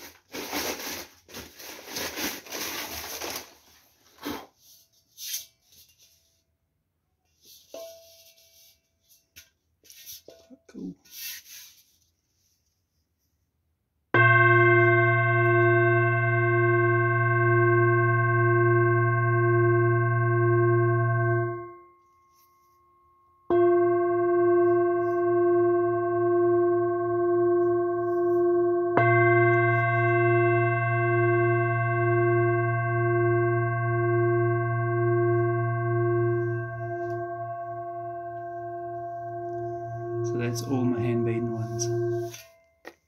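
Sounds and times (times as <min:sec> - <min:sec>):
singing bowl struck and ringing: 0:14.2 - 0:42.8.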